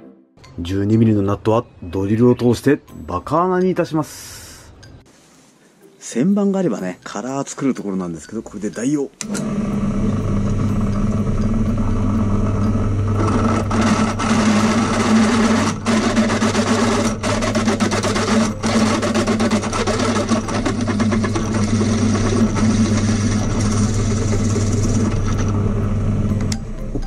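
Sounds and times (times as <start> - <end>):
drill bit scraping through metal: 9.2 - 26.3
drill press motor hum: 9.2 - 27.0.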